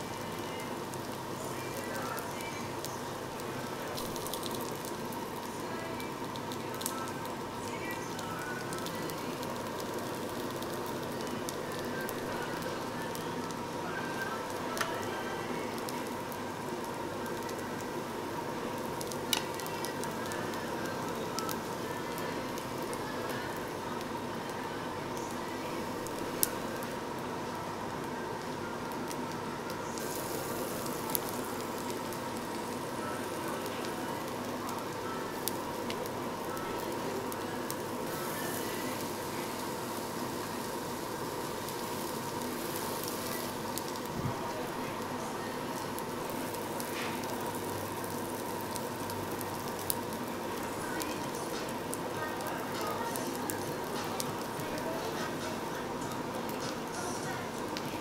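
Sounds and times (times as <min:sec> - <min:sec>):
food sizzling on a grill: 0:00.0 - 0:58.0.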